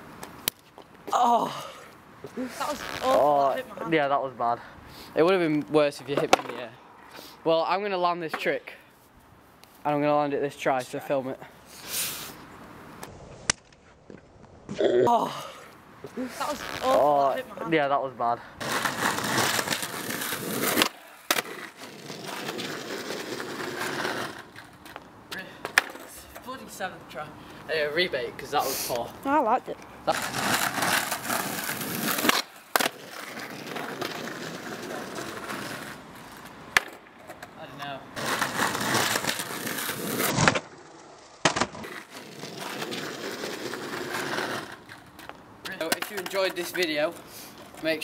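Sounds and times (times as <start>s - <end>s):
skateboard wheels rolling on tarmac: 0.0s - 8.8s, 15.4s - 48.0s
skateboard clacking on ground: 5.5s - 6.8s, 18.6s - 26.8s, 30.1s - 48.0s.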